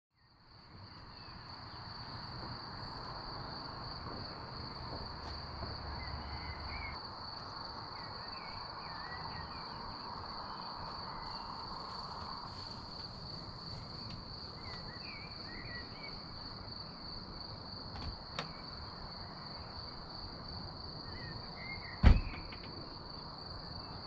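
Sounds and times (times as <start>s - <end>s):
insects trilling: 0.3s - 24.0s
birds chirping: 5.9s - 7.0s.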